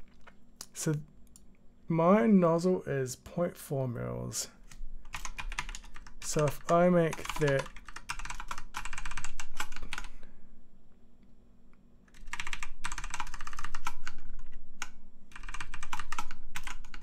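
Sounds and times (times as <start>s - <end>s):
typing on computer keyboard: 5.1s - 10.1s, 12.1s - 17.0s.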